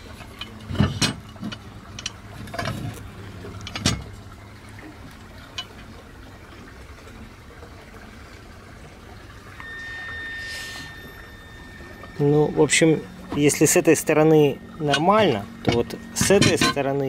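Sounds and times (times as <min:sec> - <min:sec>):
light metal clicks and knocks: 0:00.1 - 0:04.2, 0:14.9 - 0:17.0
thin high whine: 0:09.3 - 0:17.0.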